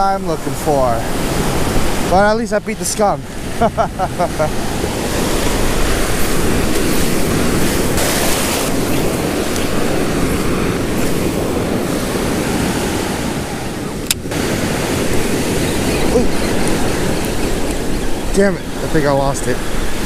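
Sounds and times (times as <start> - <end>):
ocean surf on sandy beach: 0.0 - 20.0
wind buffeting microphone: 0.0 - 20.0
sharp click: 14.0 - 14.2.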